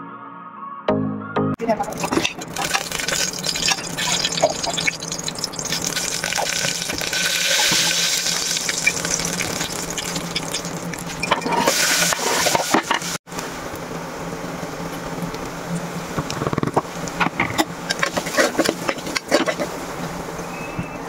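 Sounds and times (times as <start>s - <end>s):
oil hissing and crackling: 1.8s - 13.9s, 14.6s - 20.4s
oil pouring into pot: 1.9s - 12.1s.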